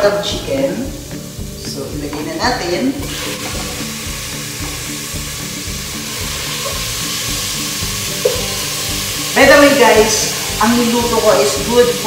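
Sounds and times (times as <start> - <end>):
chicken sizzling in oil: 2.6 - 12.0.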